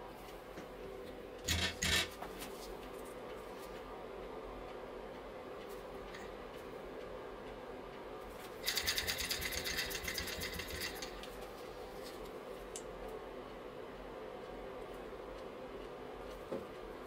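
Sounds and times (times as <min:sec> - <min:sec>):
model steam engine flywheel clicking: 0:08.6 - 0:11.3.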